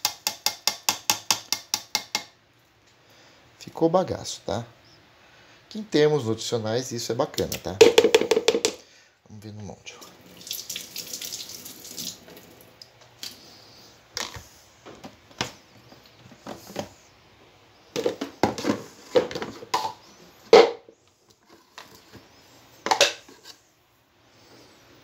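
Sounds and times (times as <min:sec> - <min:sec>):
plastic jugs knocking on countertop: 0:07.8 - 0:08.8.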